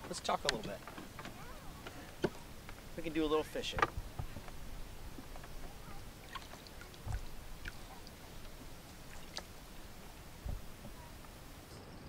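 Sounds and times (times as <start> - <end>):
small knocks on wooden dock: 0.0 - 11.4
light water splashes: 0.0 - 11.7
soft thump: 3.7 - 4.6, 10.4 - 11.0.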